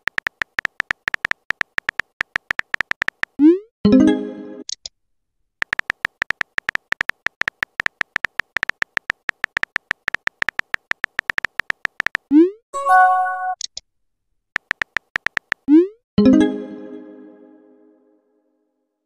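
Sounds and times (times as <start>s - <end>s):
keyboard typing clicks: 0.0s - 3.6s, 5.6s - 12.4s, 14.6s - 15.8s
message chime: 12.8s - 13.6s.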